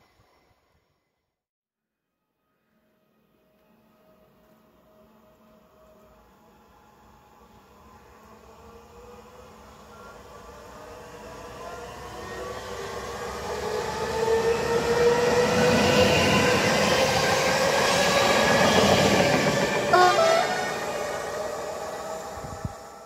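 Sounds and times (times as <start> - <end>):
electric train running: 4.8 - 23.0
falling drawn-out tone: 19.9 - 21.6.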